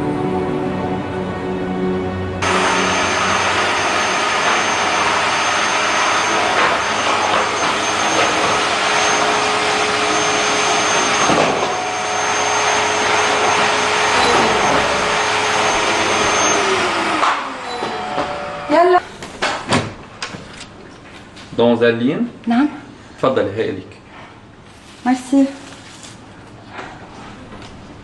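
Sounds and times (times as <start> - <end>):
vacuum cleaner running with whine: 2.4 - 19.0.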